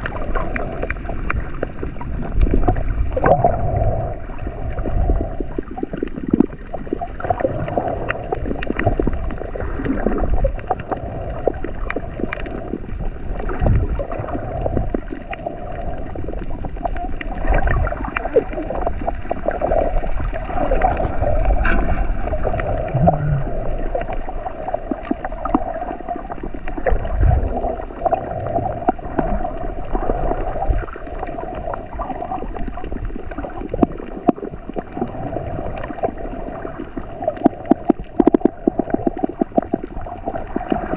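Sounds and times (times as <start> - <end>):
muffled underwater water movement: 0.0 - 40.9
steady hum: 21.2 - 23.9.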